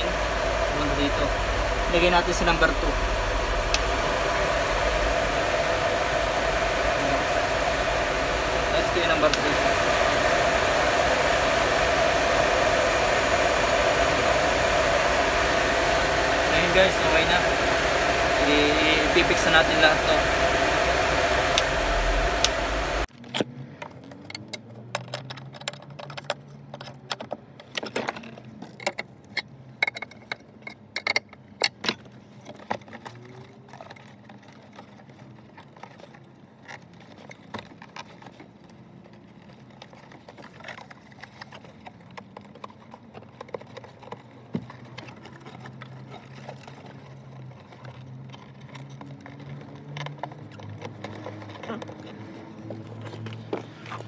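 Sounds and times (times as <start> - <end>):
blower fan running: 0.0 - 23.1, 43.4 - 54.0
low steady hum: 0.0 - 23.1.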